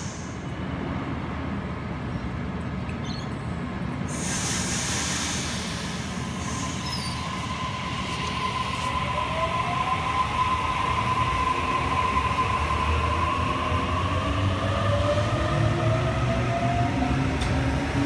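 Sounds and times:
electric train rumble: 0:04.1 - 0:18.0.

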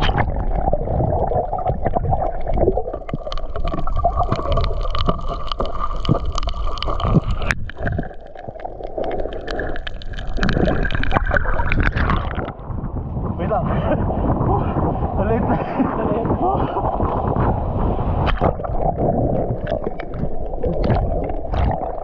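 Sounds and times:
muffled rumble of moving water: 0:00.0 - 0:22.0
sharp clicks and crackles: 0:01.6 - 0:12.6, 0:18.2 - 0:22.0.

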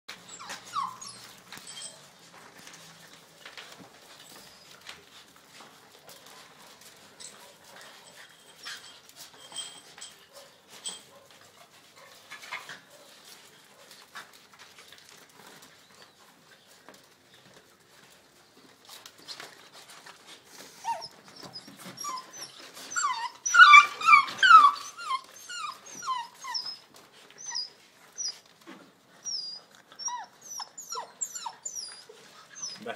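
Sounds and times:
puppies whining: 0:00.1 - 0:11.2, 0:17.5 - 0:32.9
puppies scuffling on tile: 0:00.1 - 0:32.9.

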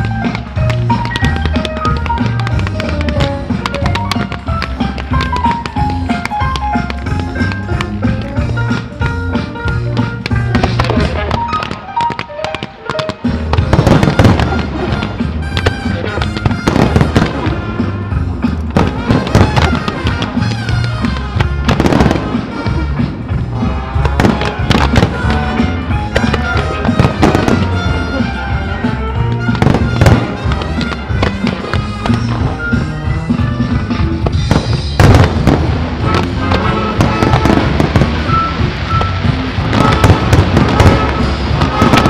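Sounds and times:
steady bass notes: 0:00.0 - 0:11.8, 0:13.2 - 0:42.0
fireworks bangs and crackles: 0:00.0 - 0:42.0
loud music soundtrack: 0:00.0 - 0:42.0.

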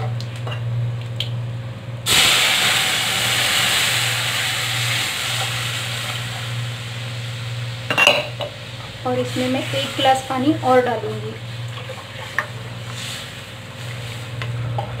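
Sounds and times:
batter sizzling in hot oil: 0:02.0 - 0:11.7.

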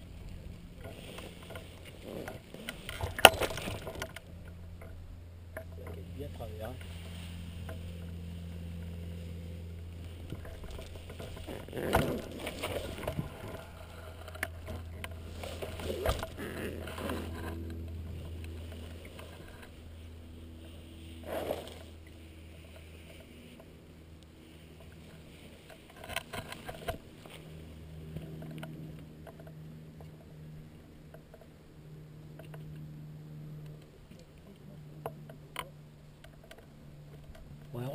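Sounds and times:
knocks and rustles: 0:10.0 - 0:19.8.

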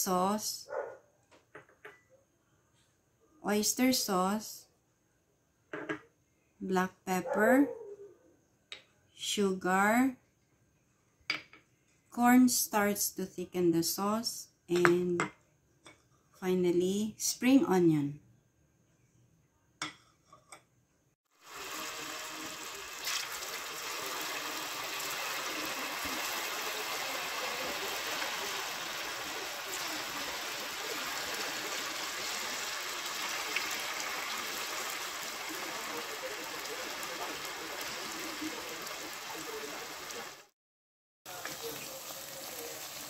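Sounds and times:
tofu sizzling in hot oil: 0:21.4 - 0:40.5, 0:41.3 - 0:43.0.

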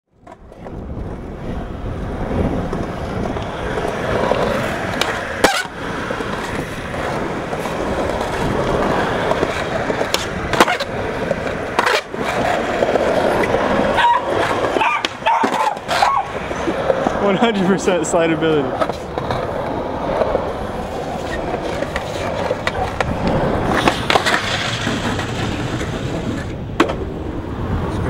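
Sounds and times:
skateboard clacks: 0:00.2 - 0:28.0
skateboard rolling over concrete: 0:00.2 - 0:28.0.

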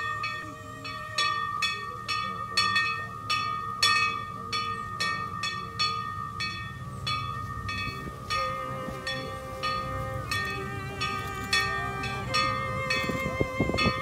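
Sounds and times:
violin playing fanfare-like passage: 0:00.0 - 0:01.9, 0:08.0 - 0:14.0.

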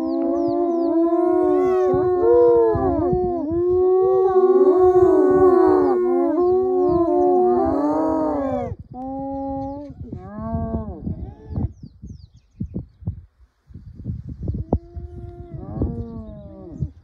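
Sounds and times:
hyenas whining calls: 0:00.0 - 0:10.6.

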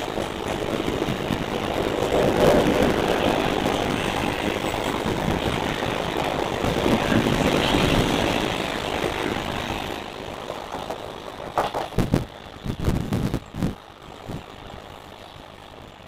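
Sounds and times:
train wheels on rails: 0:00.0 - 0:16.0.

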